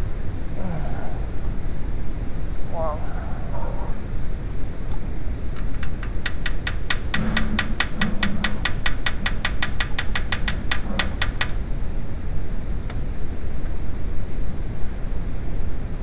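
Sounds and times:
low steady rumble: 0:00.0 - 0:16.0
ratchet clicking: 0:05.6 - 0:11.6.

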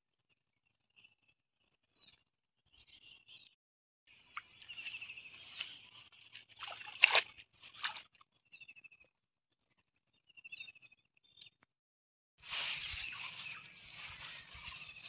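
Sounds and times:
weeds rustling and crackling: 0:12.4 - 0:15.0.

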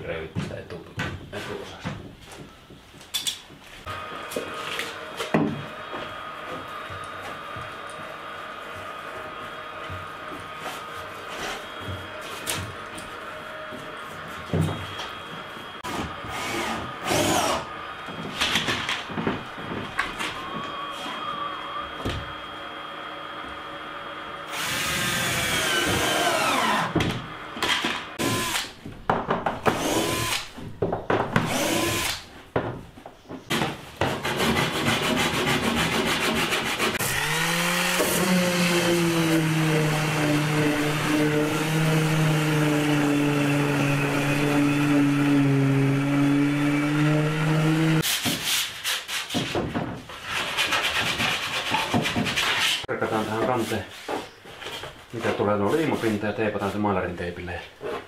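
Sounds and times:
cordless drill driving screws: 0:24.5 - 0:27.0, 0:28.2 - 0:28.8, 0:29.7 - 0:30.5, 0:31.5 - 0:32.2
wooden knocks and clatter: 0:28.8 - 0:29.8, 0:30.6 - 0:31.5, 0:49.3 - 0:50.2.

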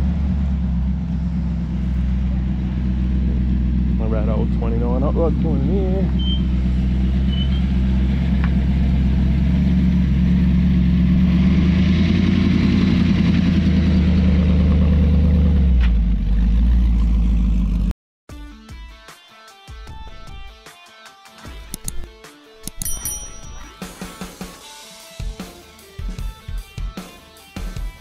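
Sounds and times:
car engine rumbling: 0:00.0 - 0:17.9, 0:19.9 - 0:20.5.

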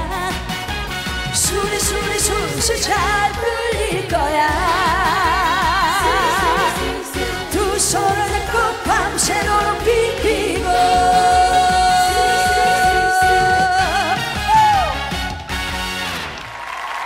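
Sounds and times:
upbeat backing track: 0:00.0 - 0:16.6
woman singing into a microphone: 0:01.4 - 0:14.2.

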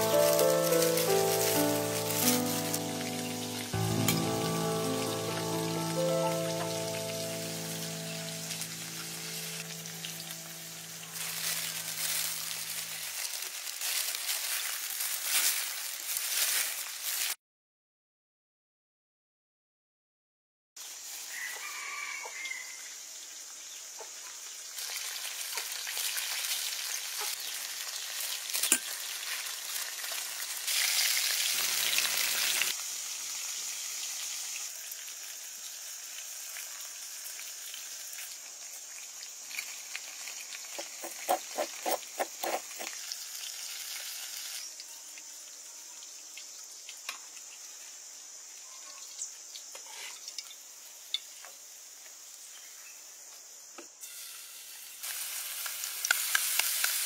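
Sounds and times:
steady high hiss: 0:00.0 - 0:13.3, 0:50.6 - 0:57.0.

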